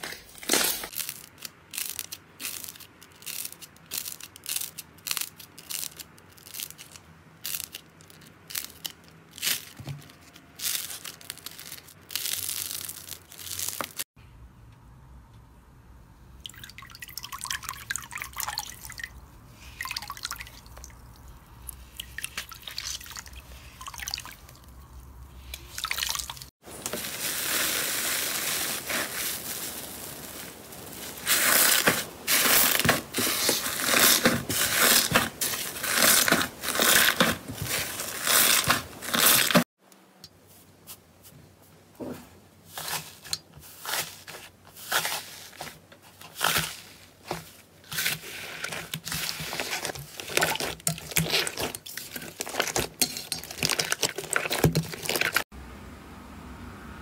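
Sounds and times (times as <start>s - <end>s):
floral foam crunching: 26.6s - 39.7s
wet slime stirred in steel bowl: 31.0s - 39.6s, 42.7s - 55.5s.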